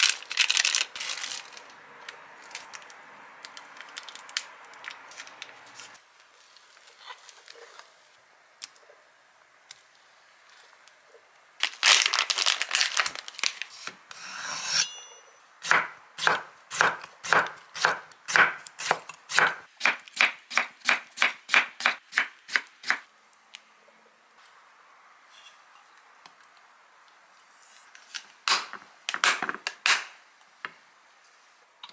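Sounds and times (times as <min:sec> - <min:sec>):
plastic packaging crinkling: 0:00.0 - 0:01.8, 0:02.4 - 0:07.9, 0:11.6 - 0:13.8
knife chopping on wooden board: 0:15.7 - 0:22.3.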